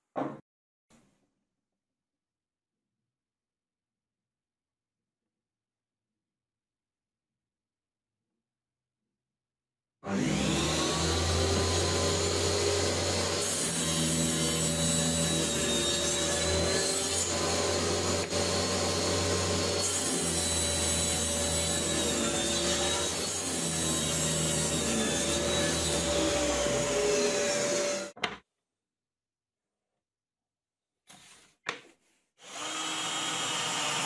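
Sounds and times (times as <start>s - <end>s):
saw blade cutting plywood: 10.0s - 28.2s, 32.4s - 34.0s
table saw humming: 10.1s - 28.2s, 32.4s - 34.0s.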